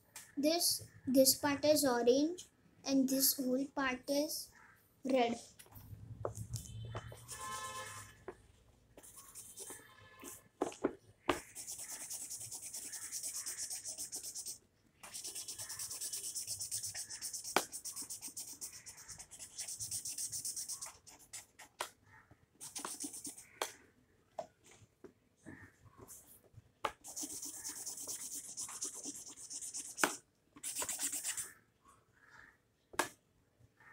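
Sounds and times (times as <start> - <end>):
felt-tip pen scribbling on paper: 9.0 - 9.8, 11.4 - 21.7, 22.6 - 23.6, 27.0 - 31.5.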